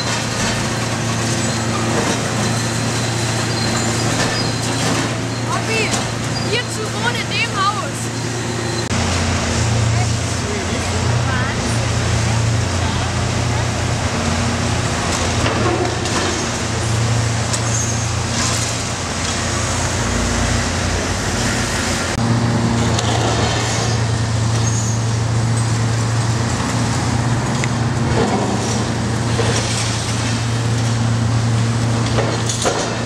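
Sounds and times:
diesel engine humming: 0.0 - 33.0.

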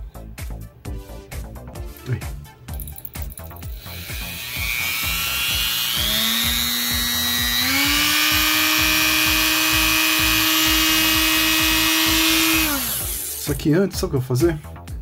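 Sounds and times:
rotary tool motor whine: 3.8 - 13.5.

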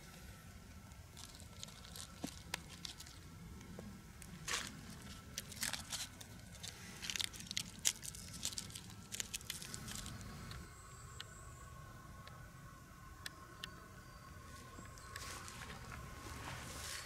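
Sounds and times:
birch bark crackling: 0.0 - 17.0.

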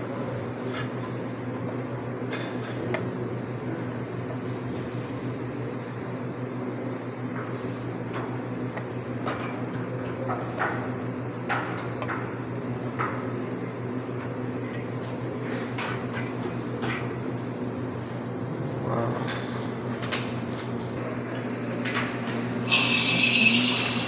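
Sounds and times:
steady low hum: 0.0 - 24.0
cups and dishes clinking: 22.6 - 24.0.

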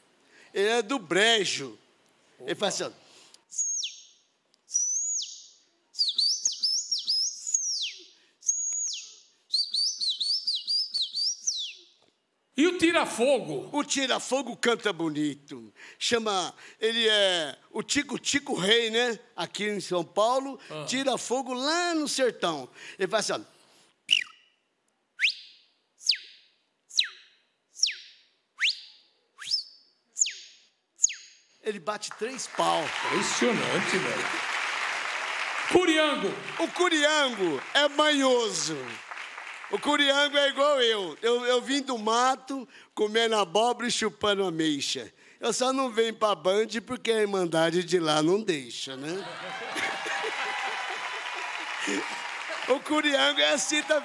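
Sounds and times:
man whistling bird song: 3.5 - 4.1, 4.7 - 11.9, 24.1 - 24.6, 25.2 - 31.4.

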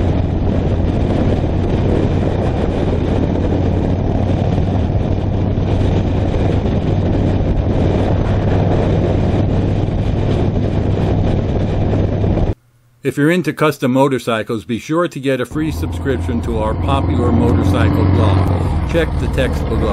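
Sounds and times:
motorcycle engine cruising: 0.0 - 12.6, 15.5 - 19.9
wind and road noise: 0.0 - 12.6, 15.3 - 19.9.

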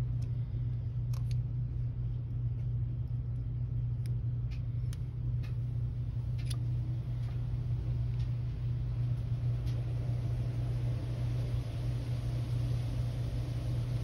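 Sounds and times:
light clicks of small parts: 0.0 - 1.5, 2.5 - 5.7, 6.3 - 7.4
low background hum: 0.0 - 14.0.

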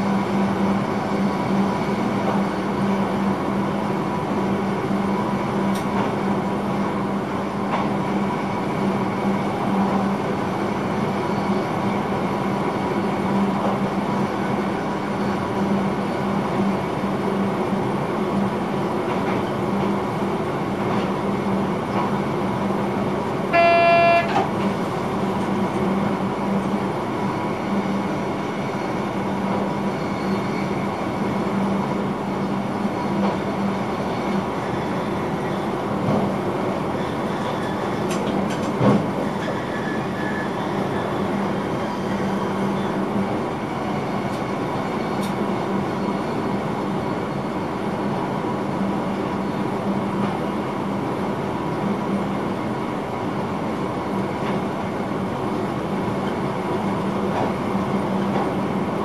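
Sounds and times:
electric train running hum: 0.0 - 59.0
train horn toot: 23.5 - 24.5.

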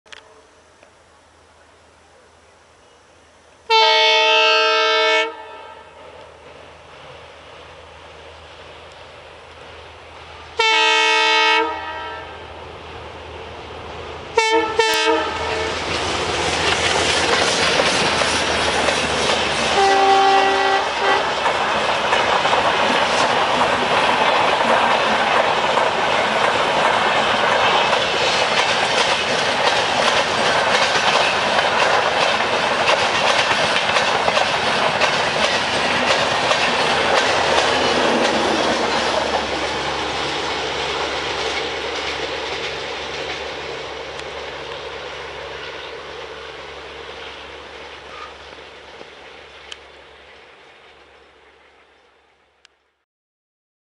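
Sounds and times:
train wheel and rail noise: 0.1 - 53.0
locomotive horn blasts: 3.7 - 6.0, 10.5 - 12.5, 14.4 - 15.8, 19.7 - 21.3.

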